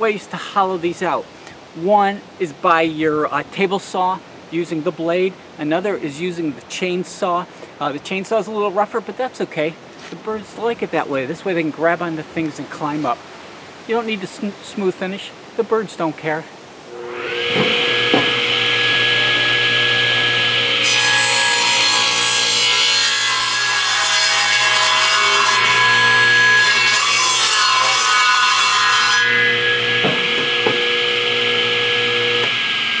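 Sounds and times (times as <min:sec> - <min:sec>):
saw blade cutting log: 0:16.9 - 0:33.0
table saw whining: 0:16.9 - 0:33.0.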